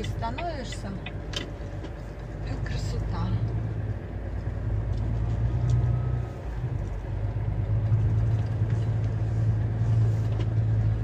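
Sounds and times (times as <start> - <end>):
truck diesel engine humming: 0.0 - 11.0.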